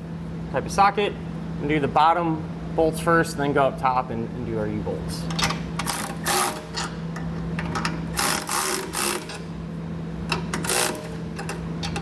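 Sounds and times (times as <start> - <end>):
cordless electric ratchet running: 8.2 - 9.4, 10.6 - 11.2.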